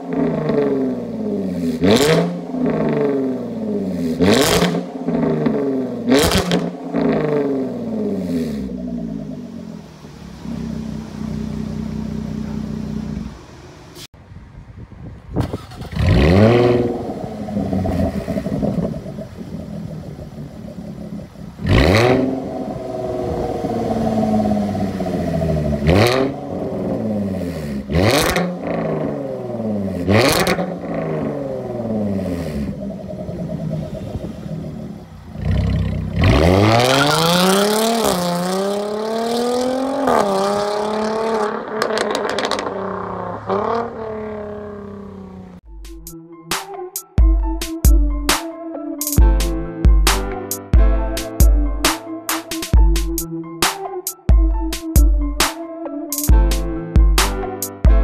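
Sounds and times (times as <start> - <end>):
car accelerating away: 0.0 - 14.1, 15.2 - 45.6
car engine revving: 0.0 - 14.1, 15.1 - 45.7.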